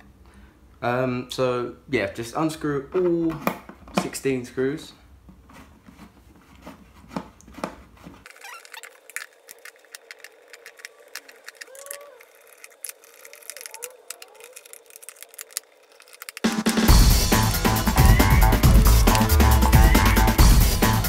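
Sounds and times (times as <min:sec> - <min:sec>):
short squeaks: 0:08.2 - 0:16.5
screwdriver clicking on screws: 0:08.3 - 0:16.9.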